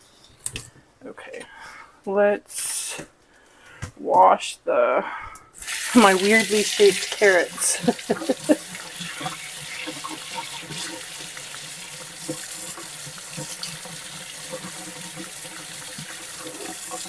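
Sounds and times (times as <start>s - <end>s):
faucet running into a sink: 5.6s - 17.0s.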